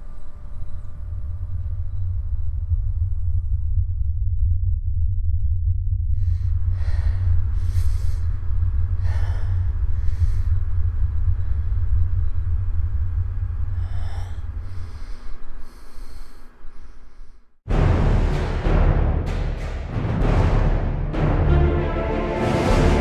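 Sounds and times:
low rumbling drone: 0.0 - 23.0
person breathing heavily: 6.2 - 12.0, 13.5 - 17.6
music: 17.7 - 23.0.

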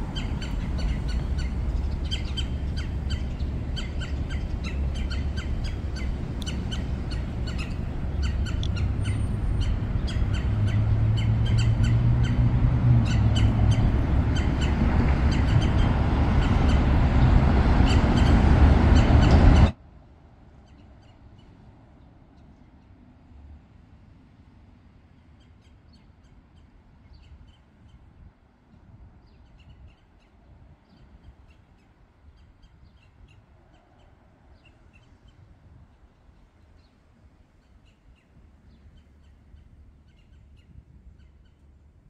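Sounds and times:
birds chirping: 0.0 - 19.7
steady low hum: 0.0 - 20.3
traffic rumble: 0.0 - 42.0.

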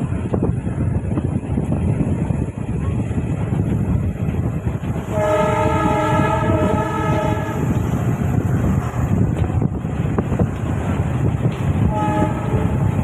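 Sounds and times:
train rumble with wheel clatter: 0.0 - 13.0
locomotive horn blast: 5.0 - 7.8, 11.8 - 13.0.

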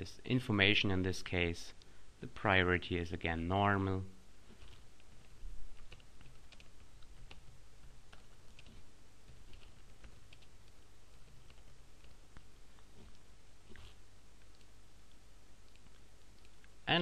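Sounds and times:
low steady hum: 0.0 - 17.0
keyboard typing: 4.4 - 16.8.

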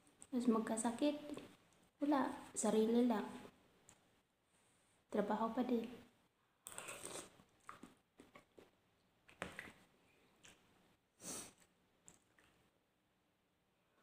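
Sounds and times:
person slurping and chewing noodles: 6.6 - 10.6.

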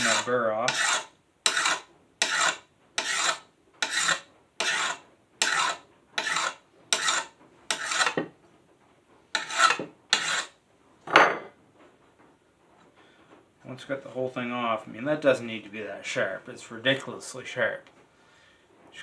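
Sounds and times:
file rasping on metal blade: 0.0 - 8.2, 9.3 - 10.6.

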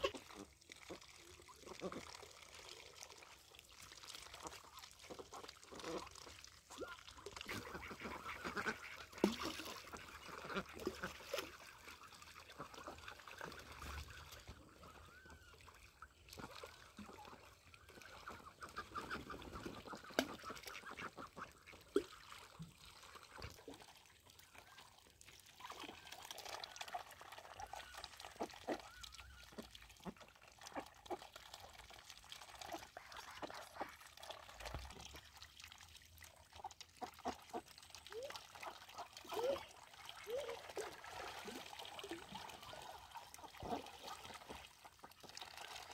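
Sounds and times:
splashing and dabbling in water: 0.0 - 45.9
ducks quacking: 6.8 - 11.2, 18.0 - 22.1.

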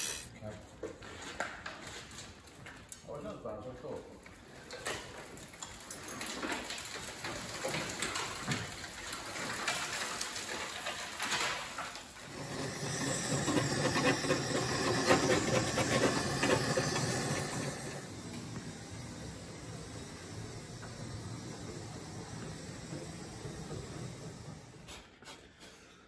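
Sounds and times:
gas blowtorch hissing: 12.2 - 25.2.

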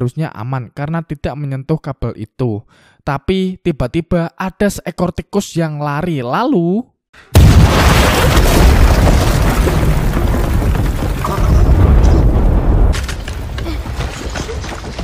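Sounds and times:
mine exploding with deep rumble: 7.4 - 14.3
falling debris clattering: 7.4 - 15.0.

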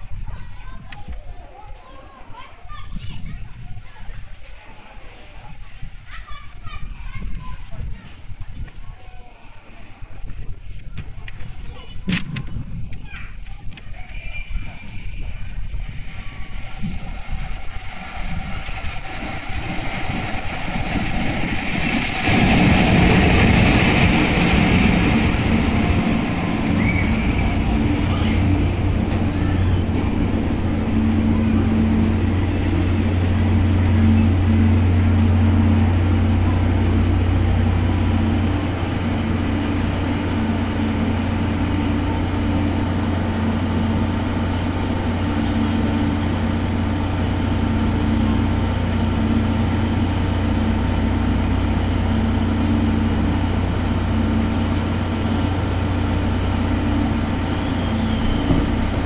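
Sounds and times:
diesel generator engine idling: 25.4 - 59.0.

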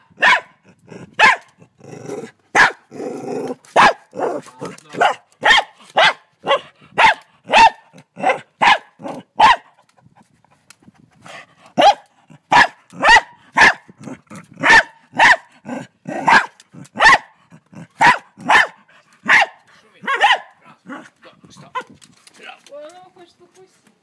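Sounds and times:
dog barking: 0.2 - 0.6, 1.2 - 1.5, 2.5 - 2.9, 3.8 - 9.7, 11.8 - 13.8, 14.6 - 21.1.

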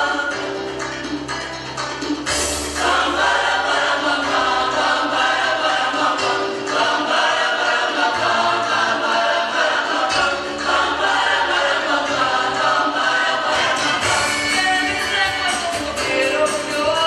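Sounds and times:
youth choir singing: 2.8 - 15.6.

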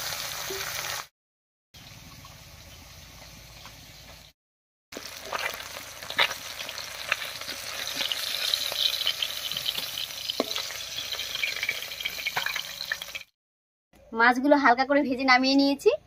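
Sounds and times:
fish sizzling in oil: 0.0 - 1.1, 4.9 - 13.3.

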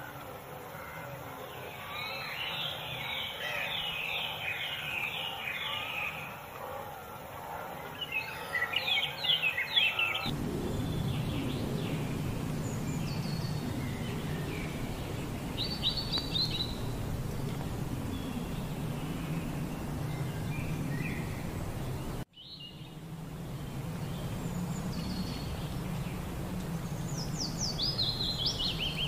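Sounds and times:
small birds chirping: 1.0 - 6.8, 7.8 - 29.0
steady low noise: 10.2 - 29.0.

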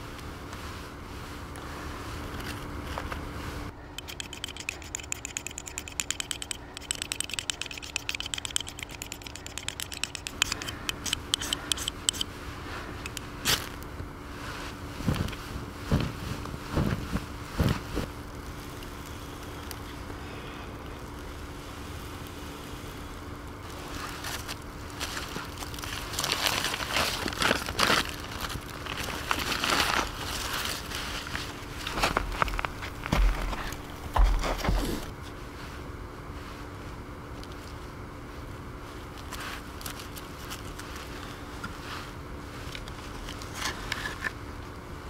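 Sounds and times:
twigs crackling and clicking: 4.0 - 12.3, 18.0 - 20.2, 20.8 - 34.2, 39.1 - 41.7.

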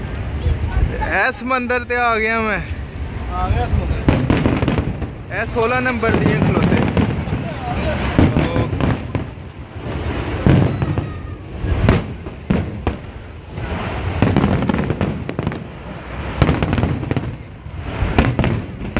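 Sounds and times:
firework shells bursting: 3.9 - 18.9.

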